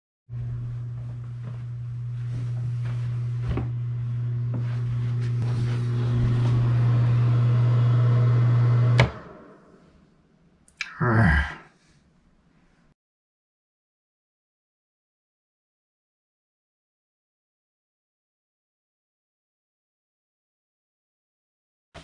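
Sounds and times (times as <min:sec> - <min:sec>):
exhaust fan humming: 0:00.3 - 0:09.8
wall switch clicking: 0:08.9 - 0:09.3
person growling: 0:10.8 - 0:11.7.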